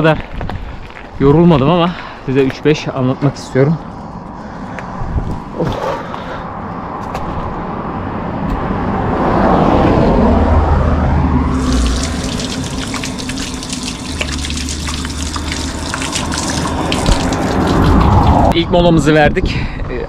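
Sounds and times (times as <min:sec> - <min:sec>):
vehicle passing: 0:06.6 - 0:18.6
fountain water splashing: 0:11.5 - 0:18.5.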